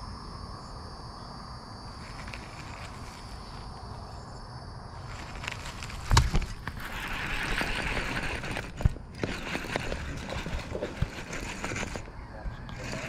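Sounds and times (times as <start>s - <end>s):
fishing reel rustling and clicks: 2.0s - 3.6s, 5.0s - 13.0s.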